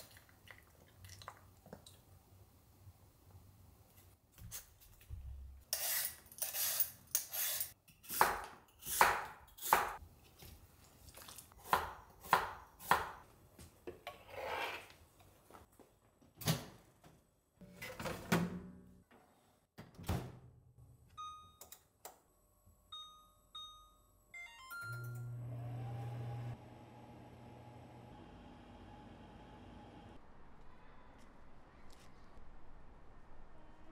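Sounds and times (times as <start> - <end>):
appliance humming: 24.9 - 30.2.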